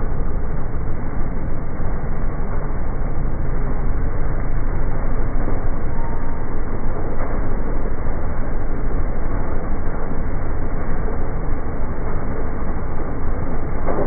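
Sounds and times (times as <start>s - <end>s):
lawn mower engine low rumble: 0.0s - 14.0s.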